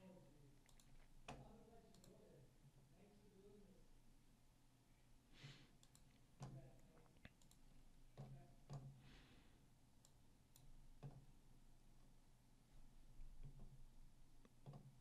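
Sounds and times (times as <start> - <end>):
faint computer mouse clicks: 0.6 - 2.2, 5.8 - 6.6, 7.2 - 9.0, 10.0 - 11.2.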